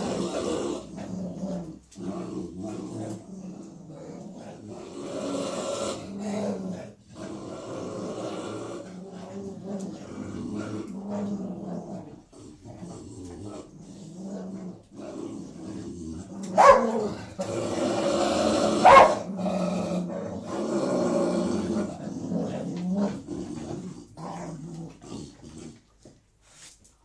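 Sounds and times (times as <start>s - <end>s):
dogs growling: 0.0s - 26.2s
dog barking: 16.6s - 17.0s, 18.8s - 19.3s.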